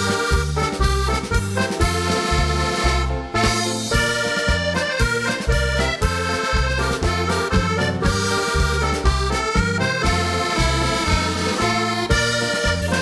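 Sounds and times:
accordion folk dance music: 0.0s - 13.0s
steady bass beat: 0.0s - 13.0s.

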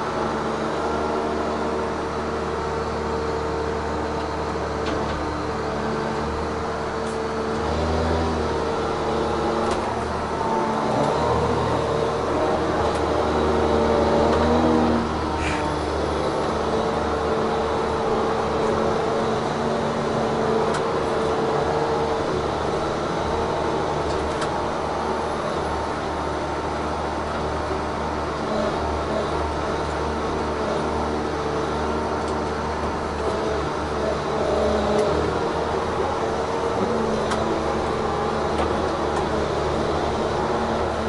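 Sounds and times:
diesel engine droning: 0.0s - 41.0s
hydraulic whine: 4.3s - 27.2s, 28.0s - 41.0s.

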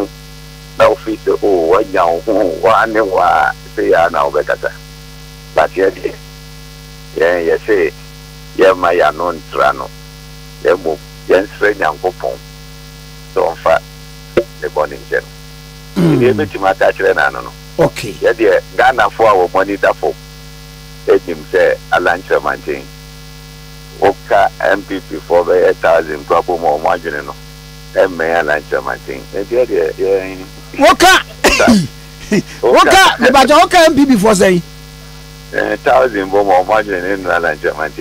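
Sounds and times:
electrical mains hum: 0.0s - 38.0s
man talking: 16.0s - 16.6s, 17.8s - 18.4s, 31.1s - 34.6s.

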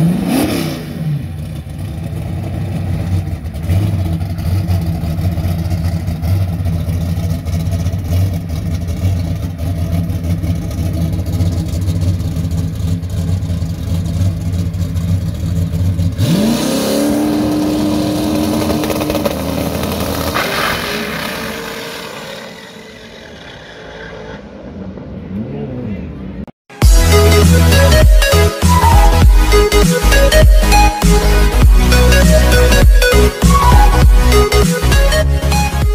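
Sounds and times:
car engine idling and launching: 0.0s - 25.3s.

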